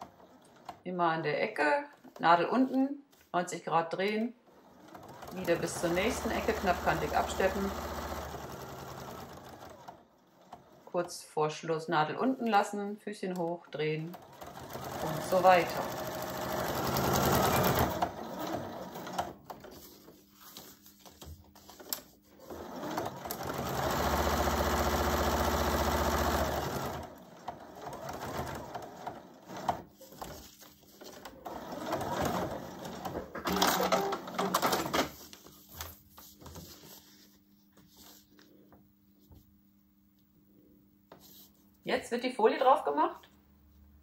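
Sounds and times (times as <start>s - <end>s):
sewing machine stitching: 4.4s - 11.2s, 14.0s - 20.0s, 21.6s - 35.3s.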